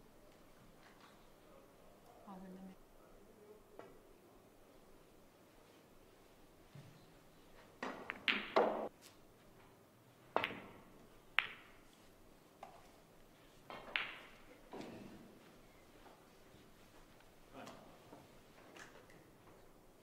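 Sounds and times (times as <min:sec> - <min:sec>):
cue striking cue ball: 0:07.8 - 0:08.9, 0:13.7 - 0:15.1
snooker balls clicking: 0:07.8 - 0:08.9, 0:10.3 - 0:11.8, 0:13.7 - 0:14.9.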